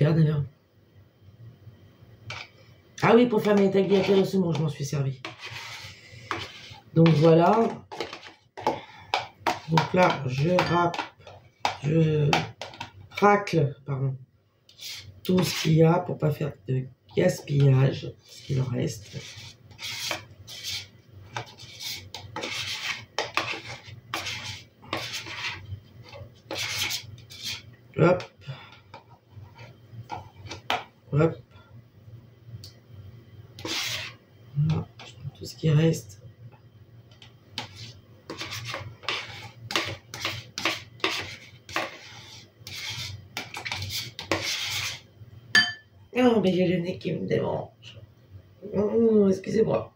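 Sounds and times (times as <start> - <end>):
metal spoon scraping plastic tub: 2.3 - 12.9, 14.7 - 15.8, 17.4 - 27.7, 28.9 - 30.8, 33.6 - 35.2, 37.2 - 45.0.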